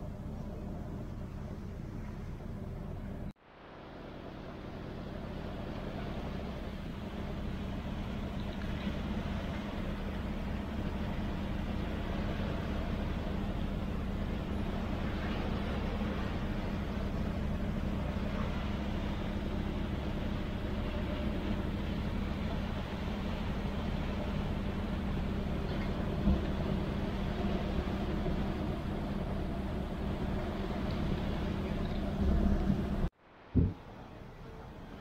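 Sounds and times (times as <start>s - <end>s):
churning wake water: 0.0s - 35.0s
ferry engines droning: 4.0s - 35.0s
brief thump: 33.6s - 33.8s.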